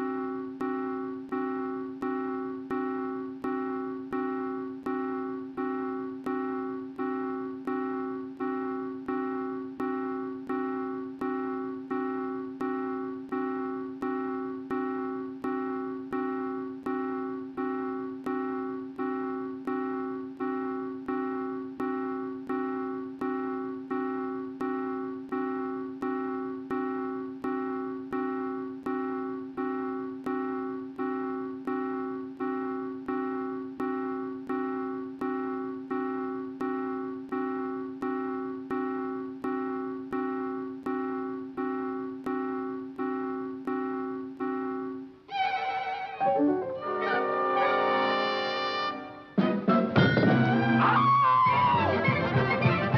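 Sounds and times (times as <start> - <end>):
soft keyboard chord: 46.2 - 47.0.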